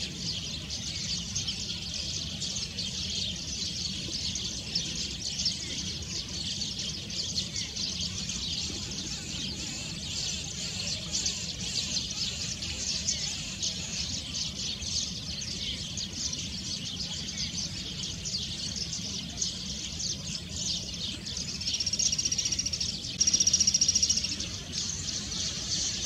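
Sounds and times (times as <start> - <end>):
birds chirping chorus: 0.0 - 26.0
high-pitched buzzy bird trill: 21.8 - 26.0.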